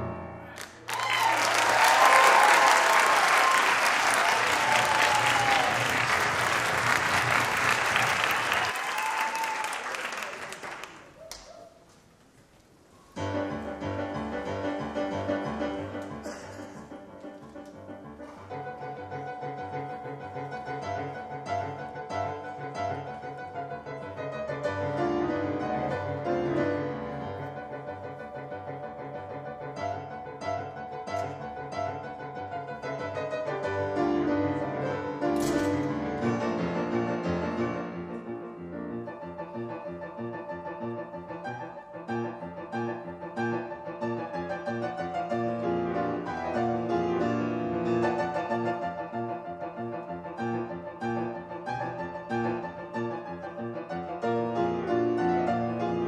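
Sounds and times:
solo piano playing: 0:00.0 - 0:00.6, 0:13.1 - 0:56.0.

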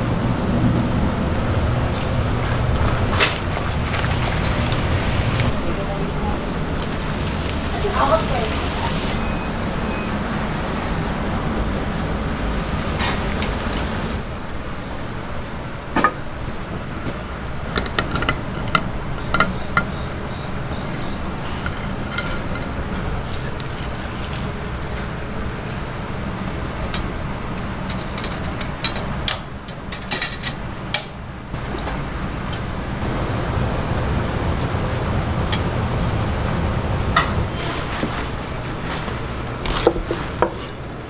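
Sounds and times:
kitchen background noise: 0:01.8 - 0:10.1, 0:12.9 - 0:14.3, 0:20.9 - 0:33.2, 0:37.1 - 0:41.0.

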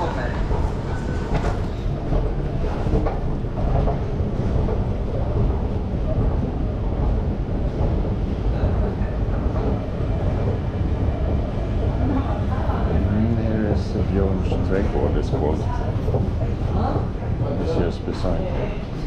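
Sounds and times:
escalator low rumble: 0:00.0 - 0:19.0.

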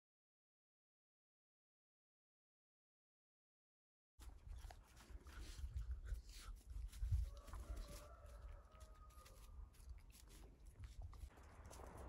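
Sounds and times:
rooster crowing: 0:07.2 - 0:09.6.

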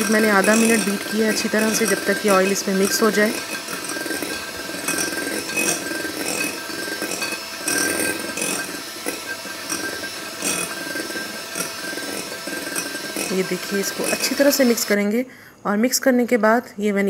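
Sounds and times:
beaters clattering in bowl: 0:00.0 - 0:15.0
electric hand mixer whining: 0:00.0 - 0:15.0.

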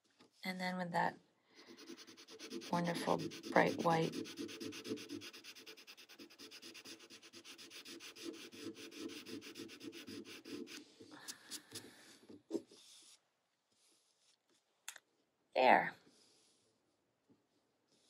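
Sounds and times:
pencil scratching on paper: 0:01.6 - 0:13.2.

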